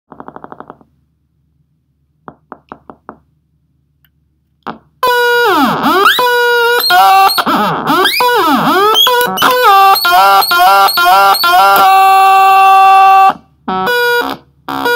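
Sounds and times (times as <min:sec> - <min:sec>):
synthesizer buzzing tone: 0:05.0 - 0:12.2.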